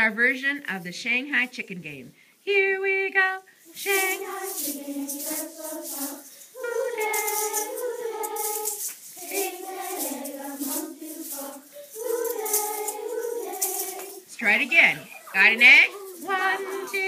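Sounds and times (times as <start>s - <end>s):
children singing in unison: 3.7s - 14.3s, 15.0s - 17.0s.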